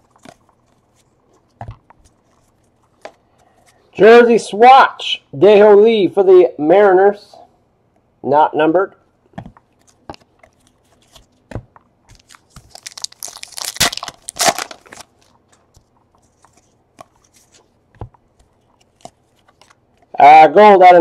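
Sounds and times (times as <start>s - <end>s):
wrapper crinkling and tearing: 12.1s - 15.4s
cards tapping and clicking: 15.5s - 20.1s.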